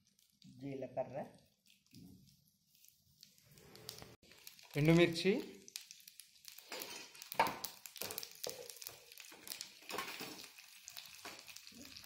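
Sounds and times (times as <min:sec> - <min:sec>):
faint sizzle: 0:00.0 - 0:12.0
spatula scraping a pan: 0:06.6 - 0:07.3.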